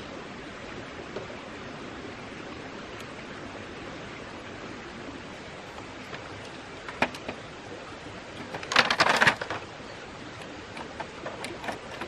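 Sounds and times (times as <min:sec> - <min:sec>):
bamboo knocking and clattering: 0:06.1 - 0:07.5, 0:08.4 - 0:09.7.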